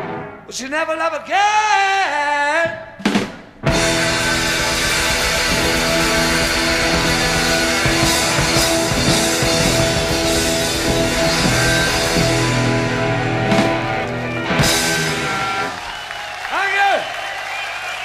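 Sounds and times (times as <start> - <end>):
rock band playing: 0.0 - 0.4, 3.4 - 16.4
cymbal crashes: 3.7 - 15.6.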